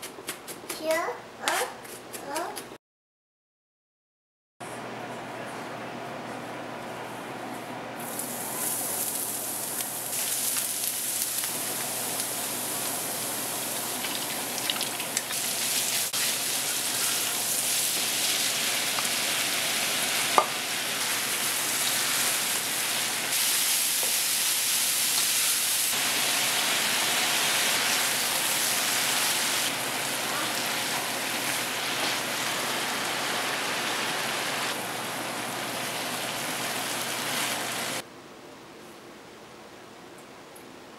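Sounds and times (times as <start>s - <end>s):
food sizzling in a wok: 8.0s - 38.0s.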